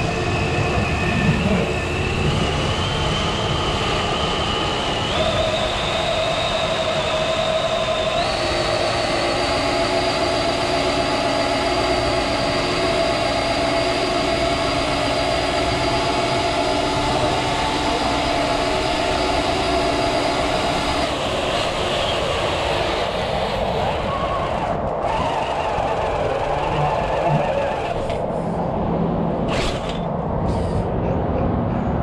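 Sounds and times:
electric motor whining: 1.3 - 28.2.

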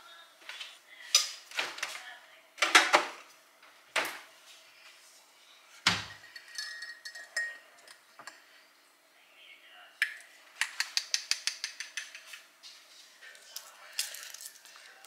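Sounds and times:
kitchen knocks: 5.9 - 6.2
metal spoon clinking in ceramic mug: 6.3 - 7.6.

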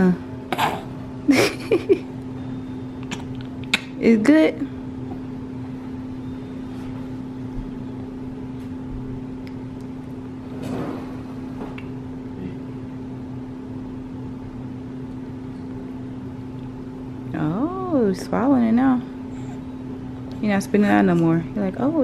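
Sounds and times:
low machine hum: 0.0 - 22.0.

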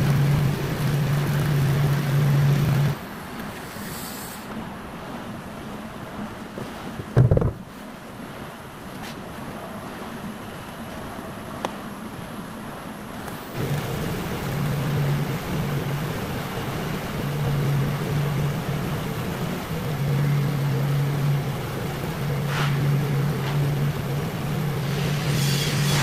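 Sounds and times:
welding arc hissing and buzzing: 0.0 - 3.0, 13.4 - 26.0.

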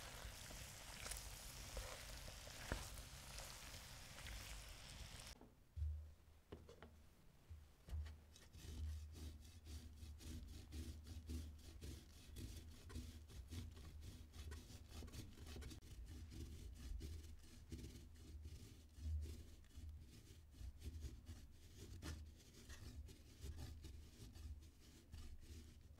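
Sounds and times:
rasping scraping strokes: 0.0 - 5.4, 8.4 - 18.8.

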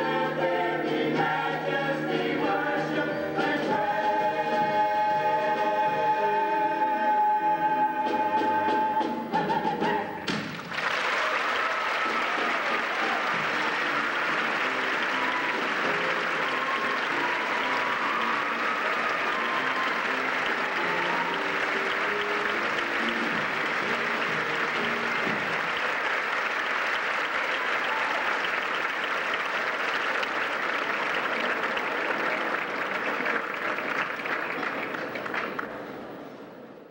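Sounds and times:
audience applauding: 10.4 - 35.9.

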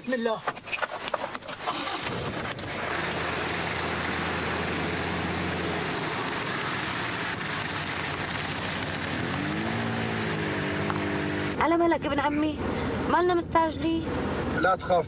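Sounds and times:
rain and wet road hiss: 1.3 - 11.6
low engine hum: 1.8 - 15.0.

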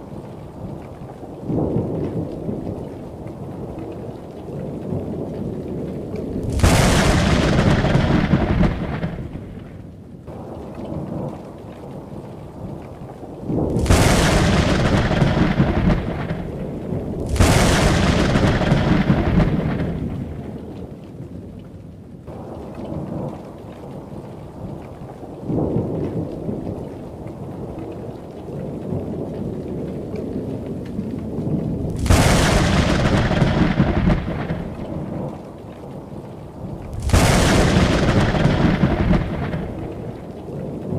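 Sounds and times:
low thunder rumble: 4.8 - 11.4, 13.4 - 20.8, 28.8 - 40.9
thunder cracks: 6.4 - 9.6, 13.6 - 20.5, 31.8 - 35.4, 36.8 - 40.2.

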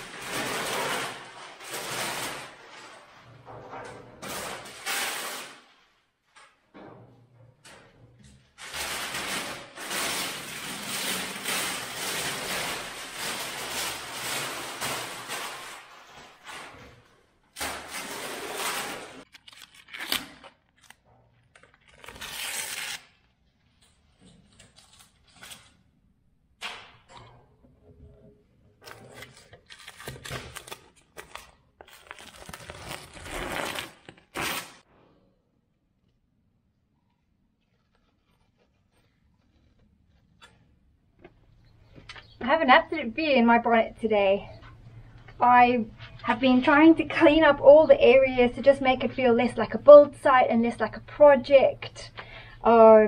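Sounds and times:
paper crackling and rustling: 0.0 - 3.3, 8.6 - 17.0, 17.6 - 23.3, 28.8 - 34.8, 37.6 - 40.6
scraping and tearing on wood: 17.6 - 20.4.

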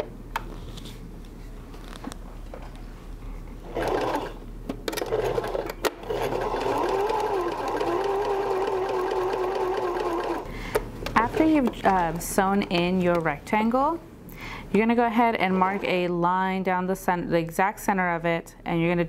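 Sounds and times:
sewing machine stitching: 3.7 - 4.4, 5.0 - 10.5.

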